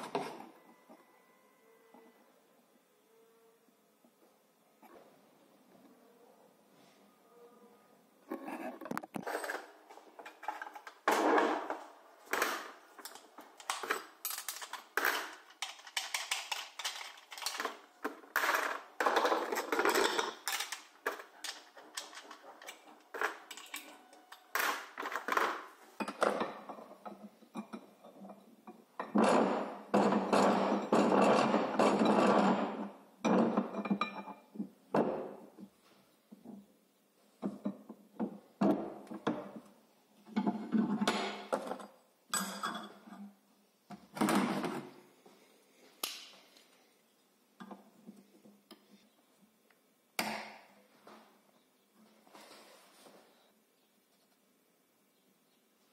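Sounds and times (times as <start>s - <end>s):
metal tools clinking on workbench: 12.3s - 28.0s.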